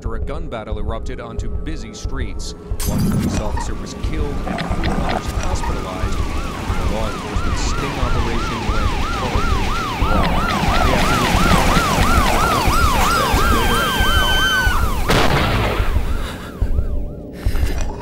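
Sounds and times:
steady held siren tone: 2.6 - 17.4
siren wails: 2.8 - 18.0
street noise: 2.8 - 18.0
siren in fast yelp: 3.3 - 17.2
sudden loud hit: 15.1 - 16.1.

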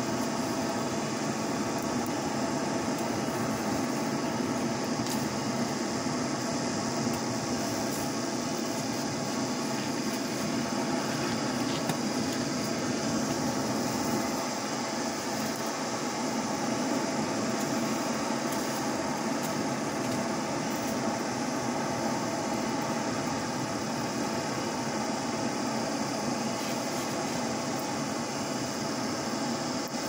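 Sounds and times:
forge fire rushing under air blast: 0.0 - 23.6
faint fire crackles: 0.0 - 30.0.

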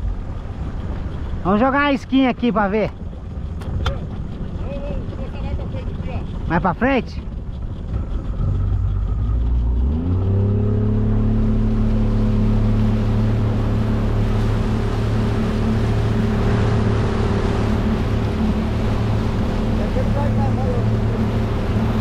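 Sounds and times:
outboard motor running: 0.0 - 22.0
water and wind hiss: 0.0 - 22.0.

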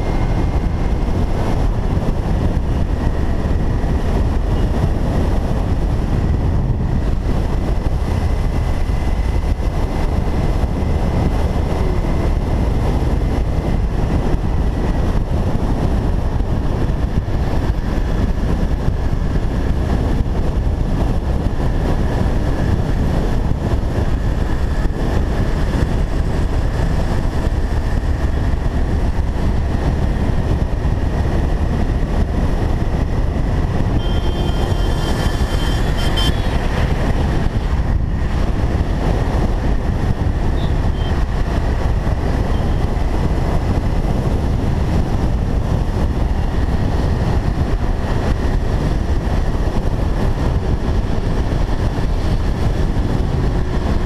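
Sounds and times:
motorcycle engine running: 0.0 - 54.0
wind and road noise: 0.0 - 54.0
brief high tone: 34.0 - 36.6.

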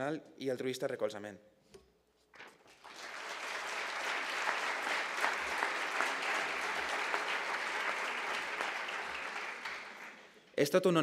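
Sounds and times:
audience applauding: 2.7 - 10.4.

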